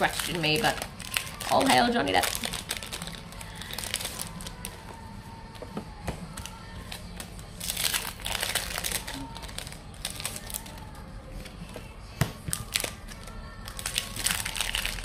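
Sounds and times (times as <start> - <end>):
plastic wrapper crinkling: 0.0 - 4.9, 6.4 - 11.0, 12.5 - 15.0.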